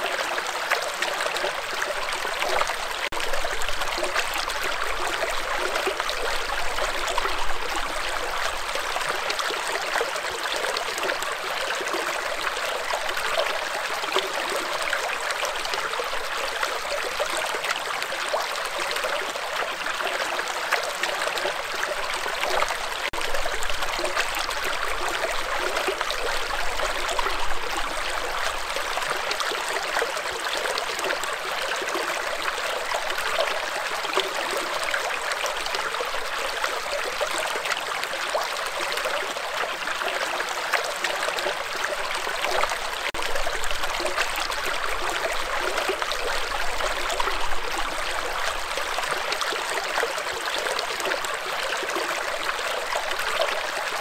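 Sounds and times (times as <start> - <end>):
stream babbling over rocks: 0.0 - 54.0.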